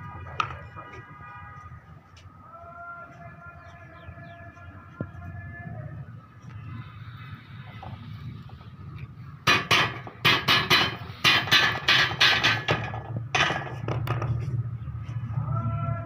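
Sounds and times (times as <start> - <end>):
hammer striking steel frame: 9.4 - 14.1.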